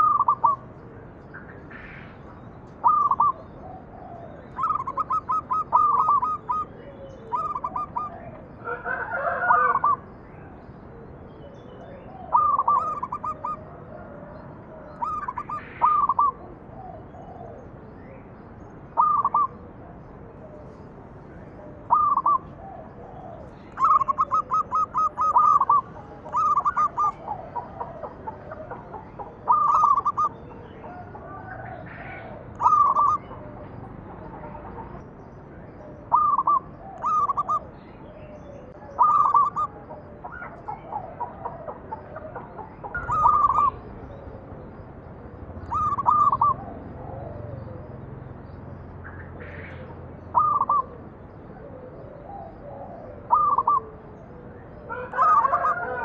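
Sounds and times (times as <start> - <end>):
dove cooing: 0.0 - 17.7, 18.9 - 35.0, 35.7 - 48.1, 49.3 - 56.0.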